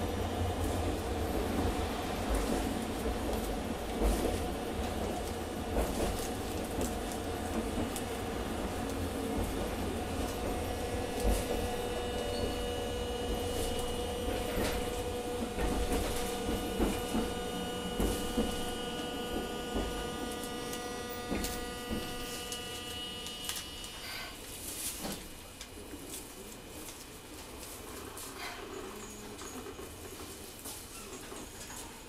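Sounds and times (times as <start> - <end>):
tram motor whine: 0.0 - 30.5
wheels clicking on track: 2.2 - 24.0.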